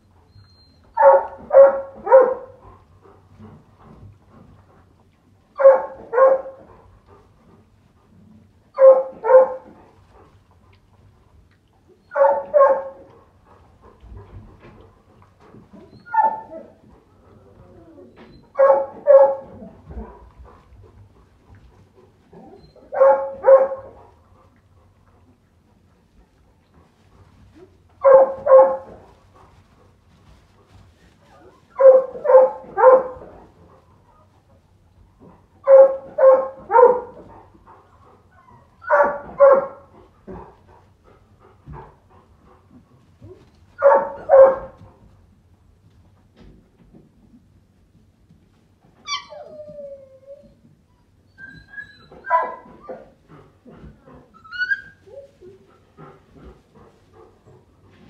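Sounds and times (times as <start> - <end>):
dog barking: 1.0 - 2.6, 5.6 - 6.6, 8.8 - 9.7, 12.1 - 13.0, 18.6 - 19.5, 22.9 - 24.0, 28.0 - 28.9, 31.8 - 33.2, 35.7 - 37.1, 38.9 - 39.9, 43.8 - 44.8, 52.3 - 52.7.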